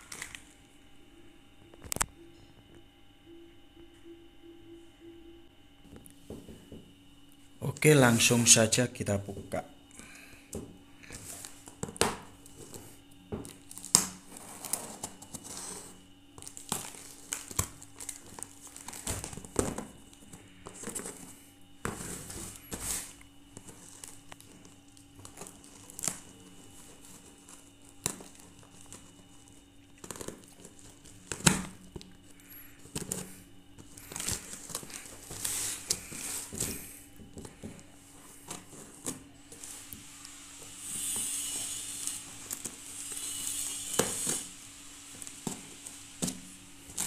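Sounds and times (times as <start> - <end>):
cardboard and tape crinkling: 0.0 - 0.5, 11.0 - 47.0
long tearing hiss: 39.5 - 46.6
scissors snipping packing tape: 40.8 - 44.5.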